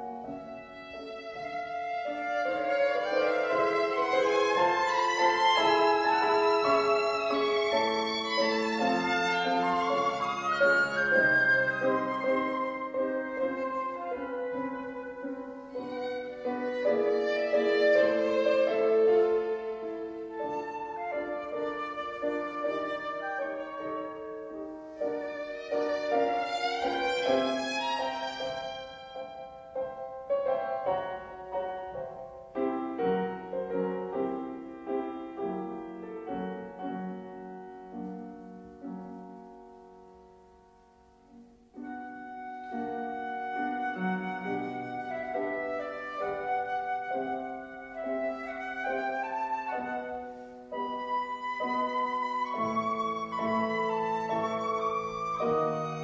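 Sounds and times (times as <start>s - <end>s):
violin melody with vibrato: 0.0s - 29.6s, 41.8s - 56.0s
piano: 0.0s - 56.0s.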